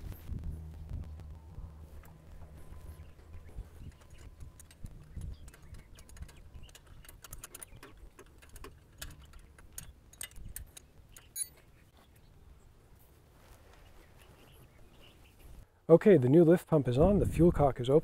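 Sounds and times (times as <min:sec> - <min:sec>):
wrench clicking on bolt: 0:03.9 - 0:11.5.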